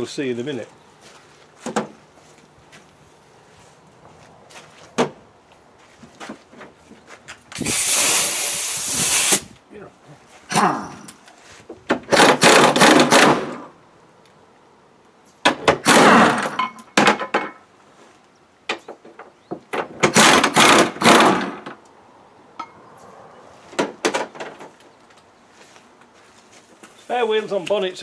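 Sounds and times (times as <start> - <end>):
air wrench bursts: 7.6 - 9.6.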